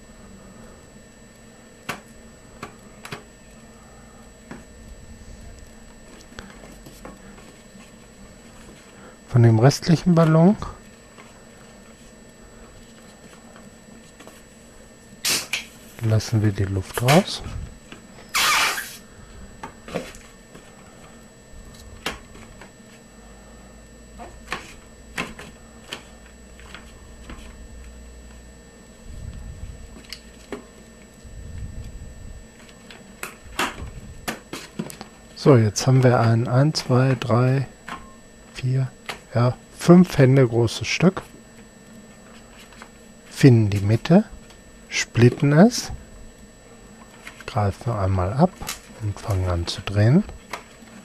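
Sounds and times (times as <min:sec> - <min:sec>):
rubber balloon rubs and squeaks: 0:18.3 - 0:19.0.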